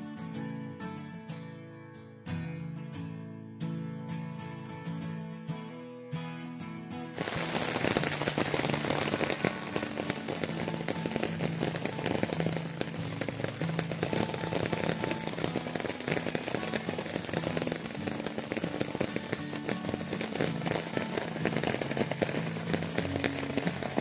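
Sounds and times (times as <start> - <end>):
soft background music: 4.0 - 24.0
rain falling on foliage: 7.2 - 24.0.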